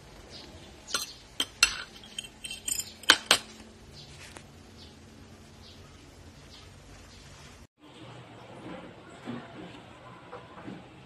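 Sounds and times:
cutlery clinking on dishes: 0:00.9 - 0:03.5.

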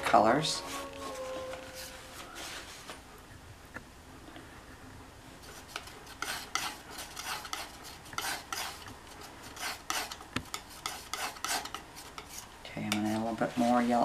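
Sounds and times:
palette knife scraping paint: 0:05.4 - 0:14.0.

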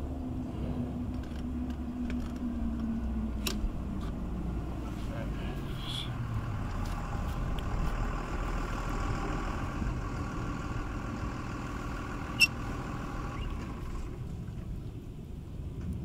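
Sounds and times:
engine idling: 0:02.5 - 0:14.9.

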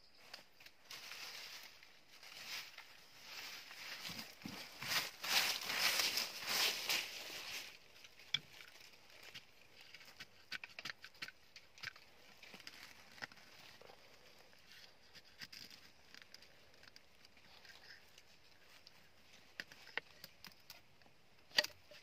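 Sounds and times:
light taps and rustles in leaves: 0:00.2 - 0:14.1.

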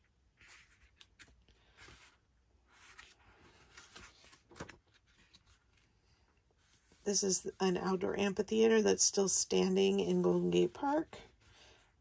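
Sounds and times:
book pages turning: 0:00.2 - 0:06.0.

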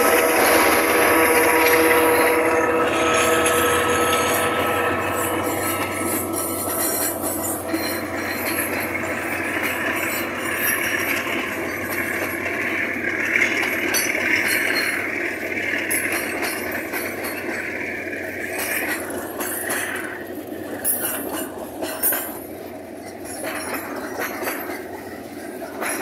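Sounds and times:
train wagons rumbling and rattling: 0:00.0 - 0:26.0.

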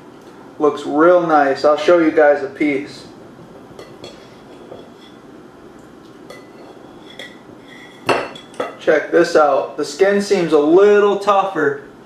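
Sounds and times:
cutlery scraping a plate: 0:03.8 - 0:05.2, 0:06.3 - 0:08.8
metal clinking on a plate: 0:06.3 - 0:08.8.

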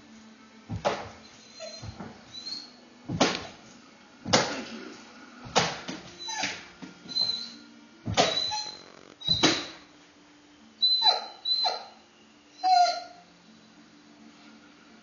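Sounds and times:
dog whining: 0:01.2 - 0:02.8, 0:06.1 - 0:09.8, 0:10.8 - 0:13.3.

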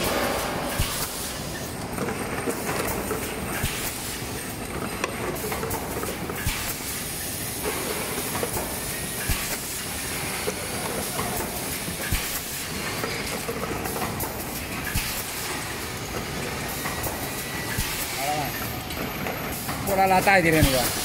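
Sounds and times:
machine clicks and knocks: 0:00.0 - 0:06.9
machine running: 0:00.0 - 0:21.0.

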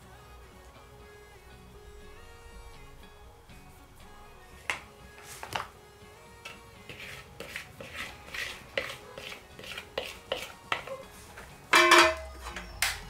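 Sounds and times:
metal sieve clinking and scraping: 0:06.9 - 0:12.8.

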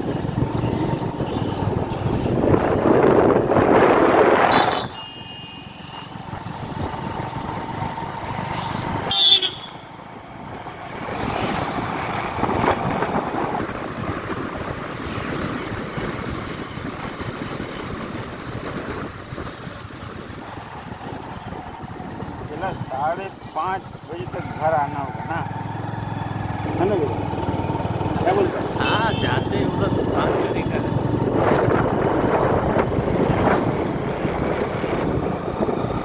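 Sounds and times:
wind on microphone: 0:00.0 - 0:04.9, 0:10.5 - 0:23.0, 0:29.6 - 0:36.0
road traffic noise: 0:00.0 - 0:36.0
vehicle horn: 0:04.4 - 0:06.4, 0:09.1 - 0:09.9, 0:28.8 - 0:29.6.

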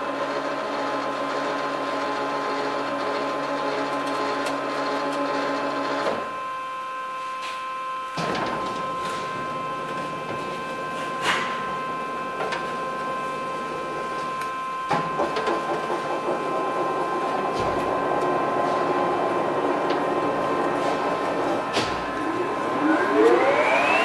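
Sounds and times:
surface grinder whining: 0:15.6 - 0:24.0.

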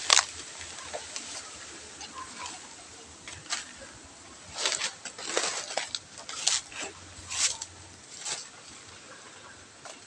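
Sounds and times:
footsteps crunching through dry leaves: 0:00.0 - 0:08.9
brushing through undergrowth: 0:00.0 - 0:09.2.

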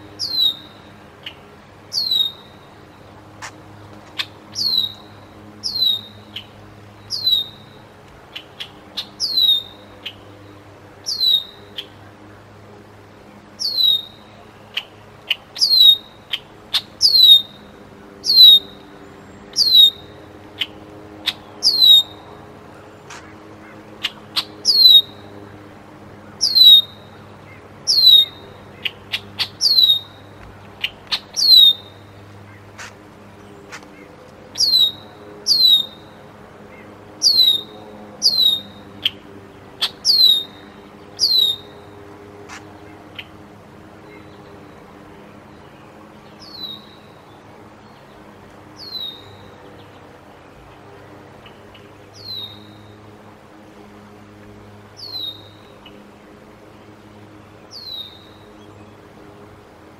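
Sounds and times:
eagle whistling calls: 0:00.2 - 0:02.7, 0:04.2 - 0:07.8, 0:08.4 - 0:10.4, 0:11.0 - 0:12.0, 0:13.6 - 0:14.9, 0:15.6 - 0:17.6, 0:18.2 - 0:18.8, 0:19.5 - 0:22.2, 0:24.0 - 0:25.2, 0:26.4 - 0:27.1, 0:27.9 - 0:32.0, 0:34.6 - 0:36.1, 0:37.2 - 0:39.2, 0:39.8 - 0:40.6, 0:41.2 - 0:41.8, 0:48.8 - 0:49.4, 0:55.0 - 0:55.5.

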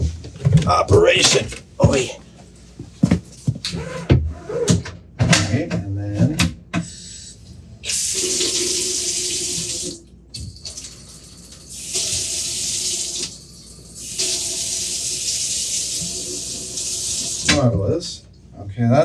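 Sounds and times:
faucet running into sink: 0:07.9 - 0:17.6.

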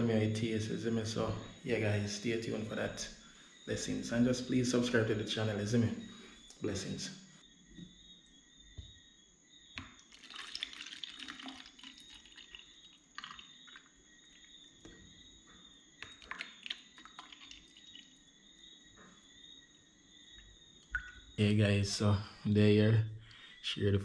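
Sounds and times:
juice trickling into cups: 0:09.8 - 0:14.7, 0:16.0 - 0:18.3.

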